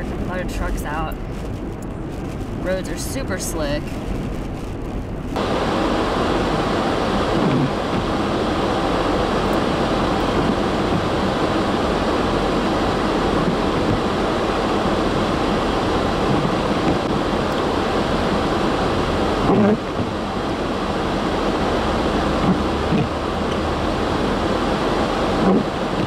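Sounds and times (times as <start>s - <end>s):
blizzard wind buffeting microphone: 0.0s - 26.0s.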